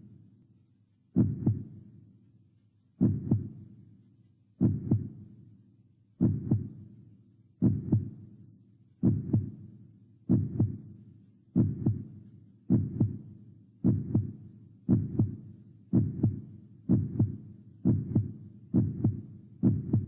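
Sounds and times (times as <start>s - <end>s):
heartbeat thumps: 1.2s - 1.7s, 3.0s - 3.6s, 4.6s - 5.2s, 6.2s - 6.8s, 7.6s - 8.2s, 9.0s - 9.6s, 10.3s - 10.9s, 11.6s - 20.0s.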